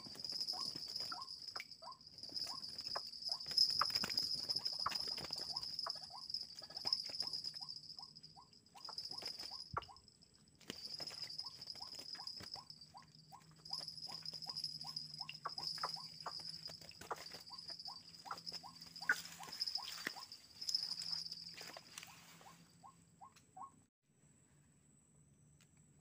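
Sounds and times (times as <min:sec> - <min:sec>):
high insect buzz: 0:10.6 - 0:22.1.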